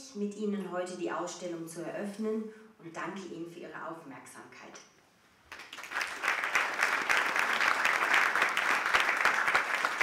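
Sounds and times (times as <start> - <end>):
audience applauding: 5.5 - 10.0.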